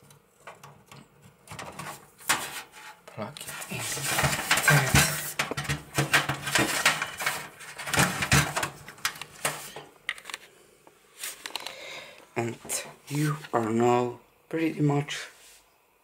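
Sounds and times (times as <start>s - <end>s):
cable rustling: 0.0s - 10.5s.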